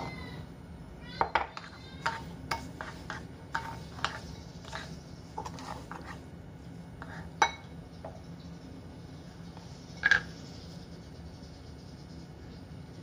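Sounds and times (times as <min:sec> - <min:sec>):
spoon clinking against bowl: 0:01.2 - 0:05.7, 0:07.4 - 0:07.7.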